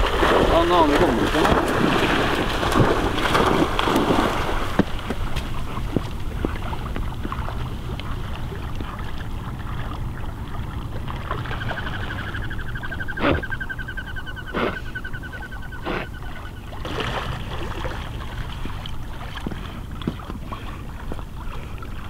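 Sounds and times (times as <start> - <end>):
dog splashing into water: 0.0 - 7.7
water washing around swimming dog: 0.0 - 13.6, 14.5 - 22.0
low wind rumble: 0.0 - 22.0
faint rapid trilling call: 11.5 - 16.7.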